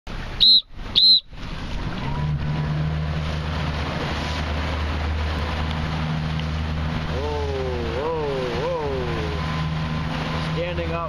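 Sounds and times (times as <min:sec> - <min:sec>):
motorboat engine running: 0:00.1 - 0:11.0
wind and water rushing: 0:00.1 - 0:11.0.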